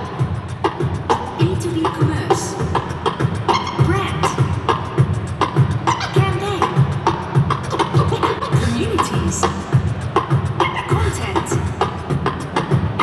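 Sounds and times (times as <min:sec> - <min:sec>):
beatboxing into a microphone: 0:00.0 - 0:13.0.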